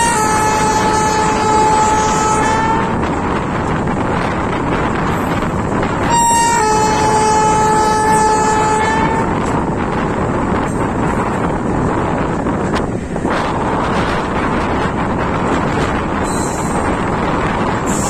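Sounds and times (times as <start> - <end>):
train horn blasts: 0.0 - 3.2, 5.9 - 9.8
train coach rumbling on track: 0.0 - 18.0.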